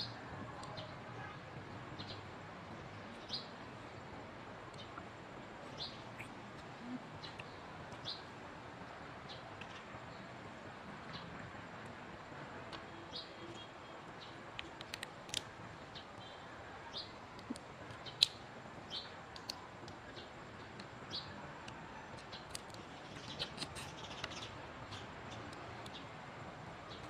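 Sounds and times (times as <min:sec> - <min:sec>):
chewing and cracking crab shell: 0:14.6 - 0:15.5.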